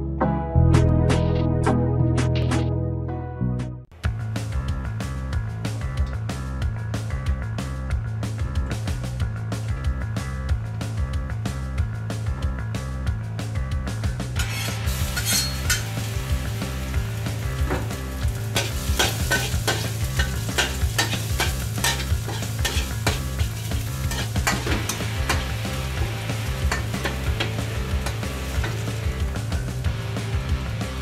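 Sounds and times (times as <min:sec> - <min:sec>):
metal spatula scraping wok: 0:14.4 - 0:16.0, 0:18.3 - 0:25.5
garlic sizzling in hot oil: 0:14.4 - 0:31.0.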